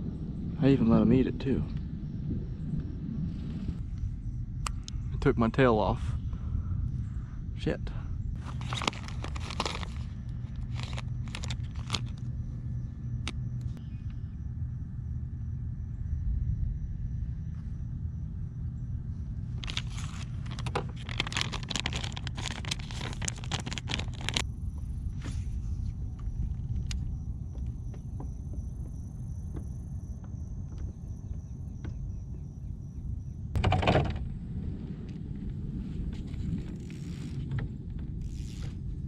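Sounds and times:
wind buffeting microphone: 0.0 - 13.6, 15.6 - 39.0.

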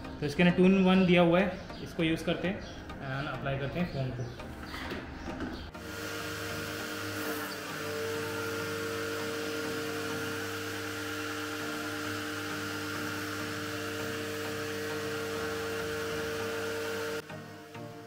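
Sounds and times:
pressure washer motor humming: 5.7 - 18.0.

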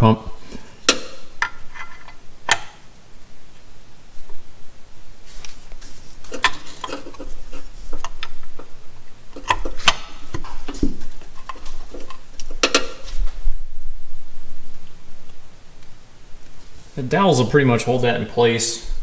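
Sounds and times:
metallic clicks and knocks: 9.4 - 13.1.

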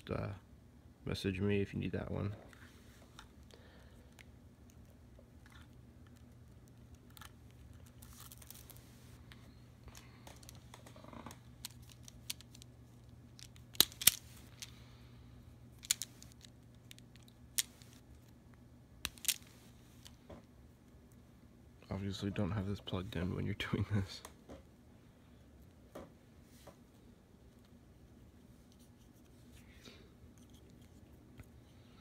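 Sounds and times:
wire rustling: 2.5 - 14.9, 15.7 - 18.4, 19.0 - 20.4.

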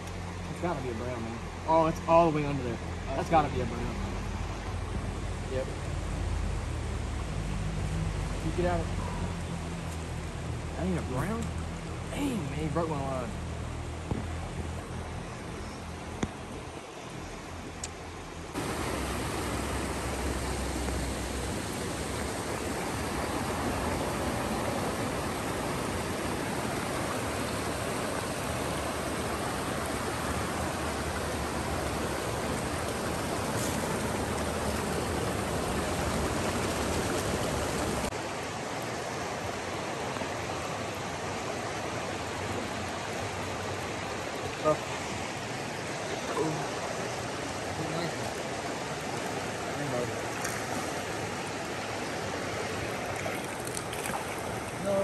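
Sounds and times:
water rushing over rocks: 0.0 - 55.0.

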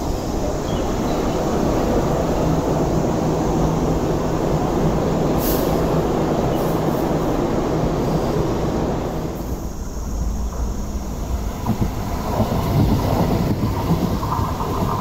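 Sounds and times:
train wheels rumbling on track: 0.0 - 15.0
short hiss: 5.4 - 5.9.

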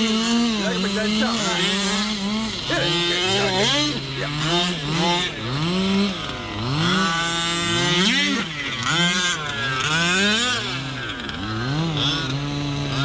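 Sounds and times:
two-stroke engines revving: 0.0 - 13.0.

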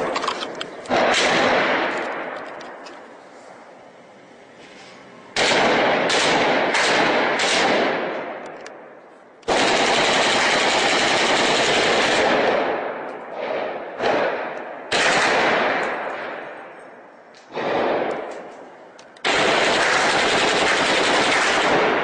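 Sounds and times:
heavy gunfire bursts echoing: 0.9 - 2.3, 5.4 - 8.4, 9.5 - 16.5, 17.5 - 18.3, 19.2 - 22.0.

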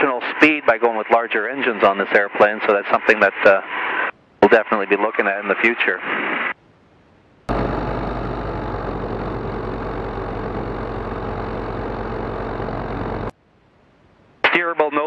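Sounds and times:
light aircraft engine and propeller: 7.5 - 13.3.

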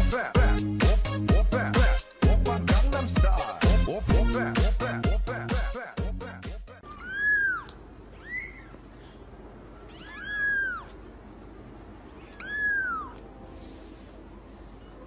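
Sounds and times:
kitten mewing: 6.8 - 8.9, 9.8 - 11.0, 12.2 - 13.3.

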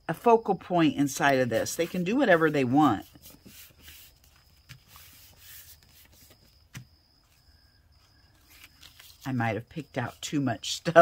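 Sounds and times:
hands rubbing paper: 1.2 - 6.6.

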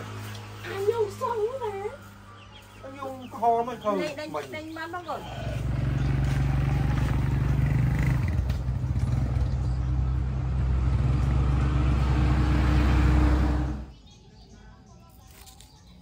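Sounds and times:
engine running: 0.0 - 3.8, 5.1 - 13.9.

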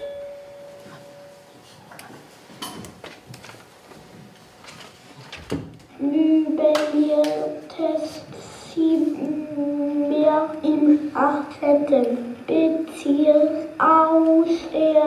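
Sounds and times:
ringing tone: 0.0 - 1.6.

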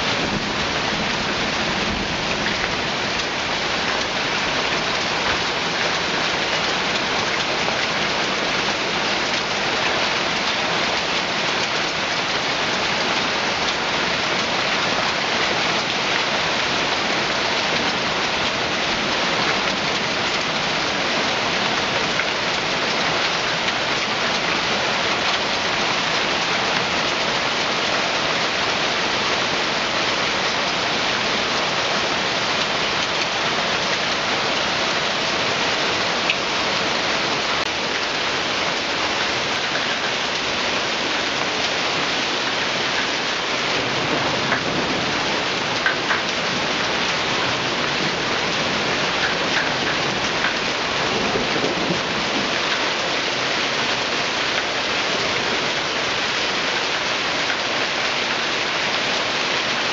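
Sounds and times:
hail and heavy rain pelting: 0.0 - 59.9.

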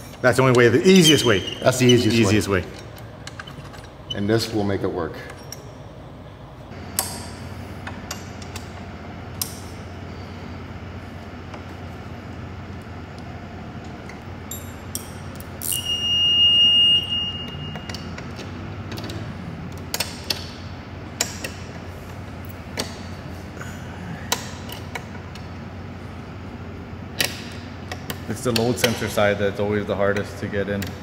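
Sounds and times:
high steady squeal: 0.8 - 2.7, 15.6 - 18.1.

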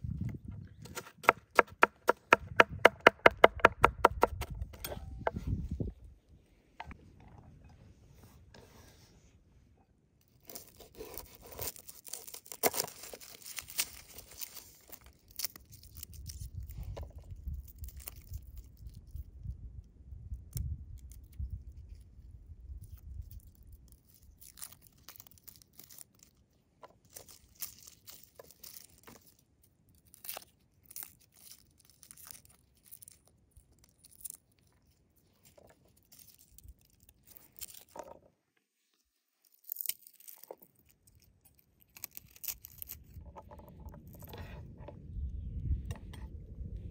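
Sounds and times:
dry garlic skins crackling: 10.2 - 38.2, 39.2 - 44.6.

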